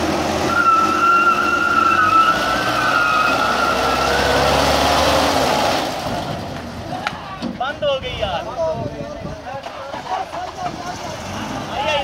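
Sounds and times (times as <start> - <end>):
engines running under load: 0.0 - 12.0
high wavering squeal: 0.5 - 4.3.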